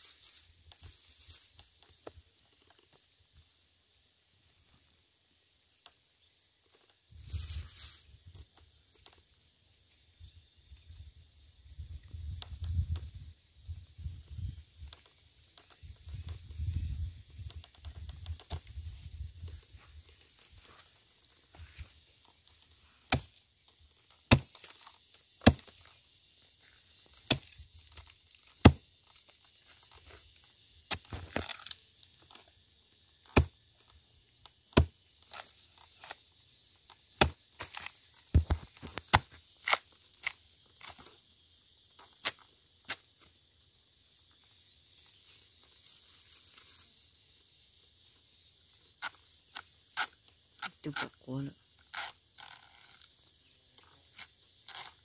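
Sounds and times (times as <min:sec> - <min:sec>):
wood tearing and splitting: 0:22.5 - 0:23.4, 0:24.0 - 0:26.0, 0:27.1 - 0:30.2, 0:30.9 - 0:32.5, 0:33.2 - 0:33.6, 0:34.6 - 0:36.2, 0:36.8 - 0:41.1, 0:51.8 - 0:53.2, 0:54.1 - 0:55.0
hatchet chopping wood: 0:23.1 - 0:23.4, 0:24.2 - 0:24.7, 0:25.4 - 0:25.9, 0:27.1 - 0:27.6, 0:28.6 - 0:28.9, 0:33.2 - 0:33.6, 0:34.7 - 0:35.0, 0:37.1 - 0:40.4.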